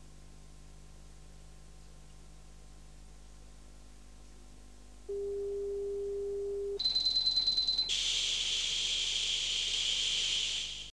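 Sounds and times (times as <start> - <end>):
high-pitched whine with crackle: 6.0 - 10.9
tv static hiss: 7.9 - 10.9.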